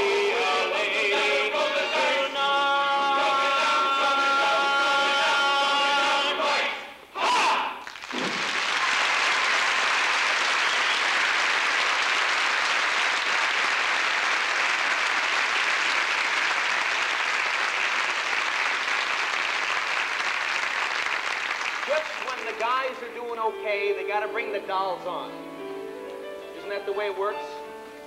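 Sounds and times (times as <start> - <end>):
audience applauding: 7.8 - 23.1.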